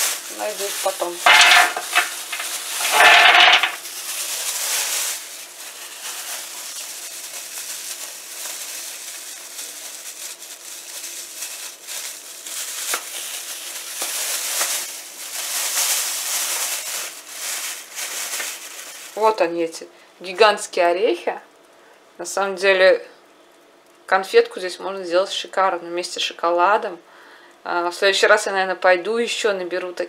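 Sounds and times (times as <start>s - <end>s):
plastic bag rustling: 0.0s - 19.4s
nuts rattling onto metal tray: 0.3s - 3.8s
nuts clicking onto tray: 1.2s - 3.8s.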